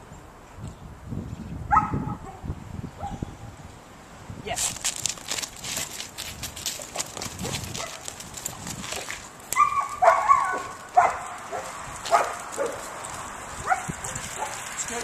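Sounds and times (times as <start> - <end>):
dog barking: 1.7 - 2.4, 3.0 - 3.2, 9.6 - 12.9, 13.6 - 14.6.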